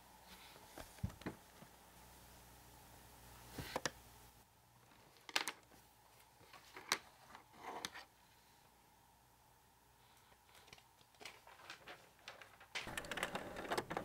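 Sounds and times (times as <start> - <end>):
paper rustling: 10.5 - 14.0.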